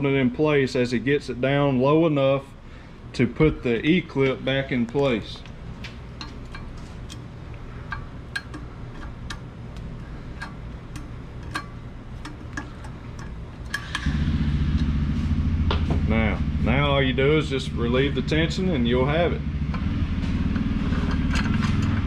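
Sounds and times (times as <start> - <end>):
steady low machine hum: 0.0 - 22.0
low hum: 2.5 - 22.0
pliers clicking on metal: 7.9 - 14.1.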